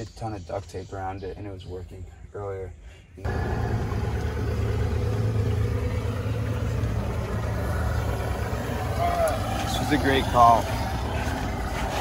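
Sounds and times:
motorboat engine running: 0:03.2 - 0:12.0.

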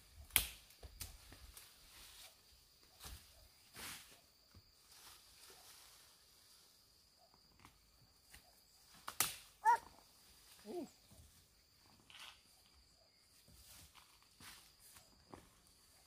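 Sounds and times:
short animal calls: 0:09.6 - 0:10.0.

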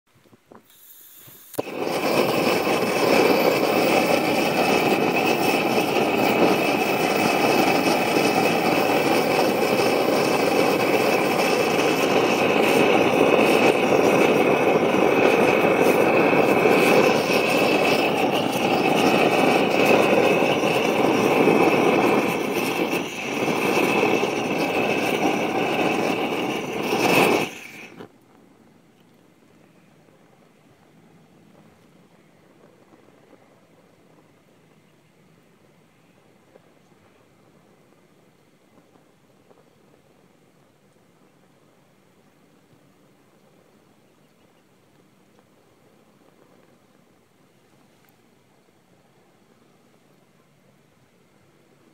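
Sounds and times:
gas torch hissing: 0:00.6 - 0:28.1.

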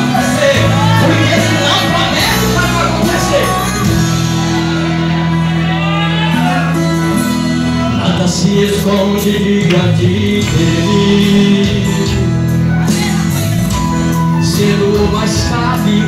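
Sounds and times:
man singing gospel: 0:00.0 - 0:04.1, 0:07.9 - 0:13.2, 0:14.2 - 0:16.0
band playing held notes: 0:00.0 - 0:15.9.

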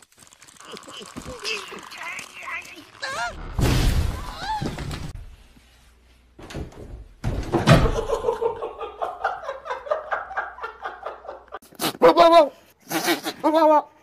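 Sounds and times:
body thumping against door: 0:06.4 - 0:08.1.

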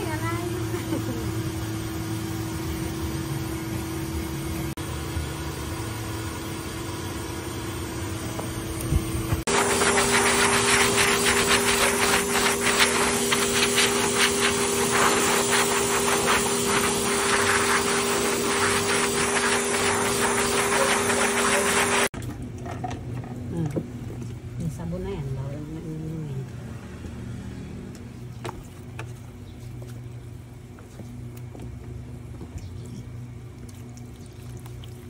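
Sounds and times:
blow dryer running: 0:00.0 - 0:22.2.

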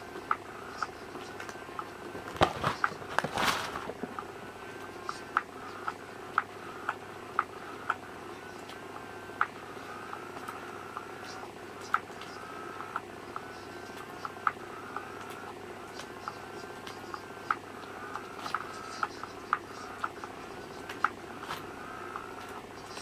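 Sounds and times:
fabric tunnel rustling: 0:02.4 - 0:04.0.

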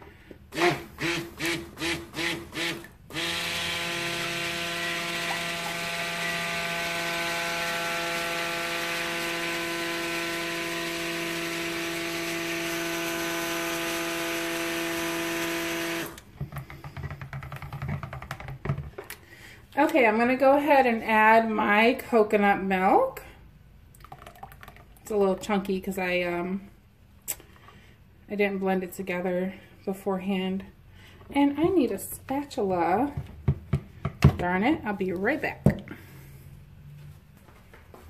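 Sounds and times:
stick blender motor hum: 0:00.5 - 0:16.3.

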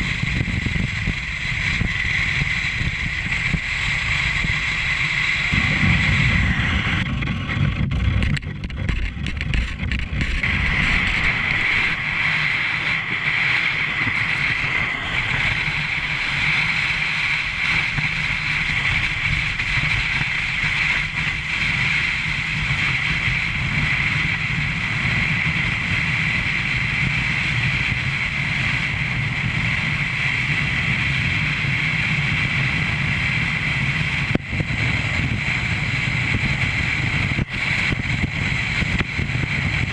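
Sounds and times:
sled scraping over snow: 0:00.0 - 0:39.9
wind on microphone: 0:00.0 - 0:39.9.

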